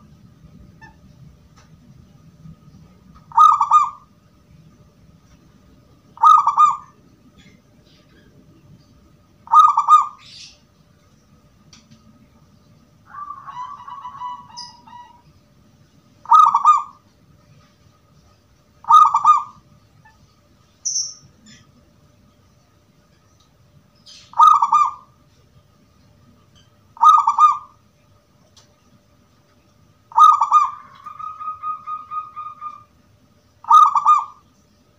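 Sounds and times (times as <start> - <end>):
dove cooing: 3.3 - 4.1, 6.2 - 8.3, 9.5 - 10.4, 13.1 - 15.2, 16.2 - 17.0, 18.8 - 19.6, 24.1 - 25.1, 27.0 - 27.8, 30.1 - 32.9, 33.6 - 34.4.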